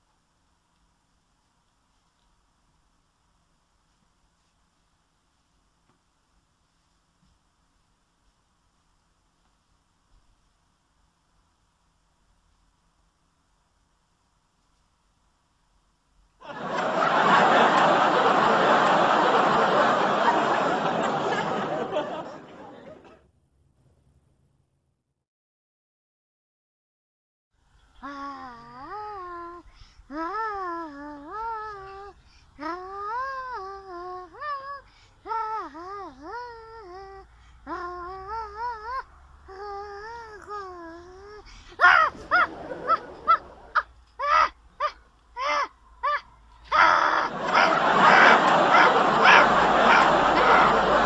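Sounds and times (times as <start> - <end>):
canned audience laughter: 16.4 - 23.2, 41.8 - 43.8, 47.3 - 51.0.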